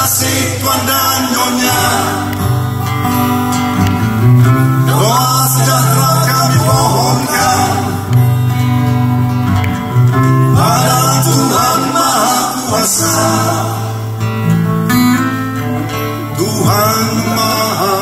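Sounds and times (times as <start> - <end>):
man singing: 0.0 - 2.6, 4.8 - 8.1, 10.4 - 14.0, 16.2 - 18.0
acoustic guitars strumming: 0.0 - 18.0.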